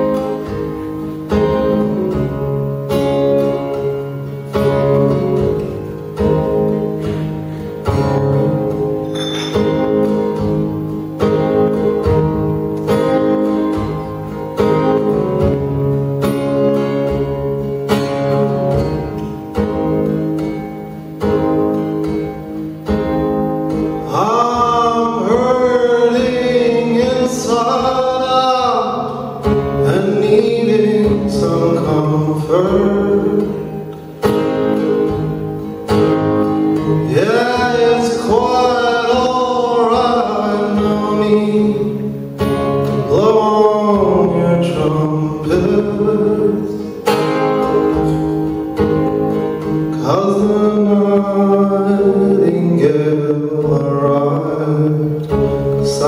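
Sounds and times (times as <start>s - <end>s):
acoustic guitar: 0.0s - 56.0s
man singing: 24.0s - 33.9s, 36.8s - 42.3s, 42.9s - 47.0s, 49.9s - 56.0s.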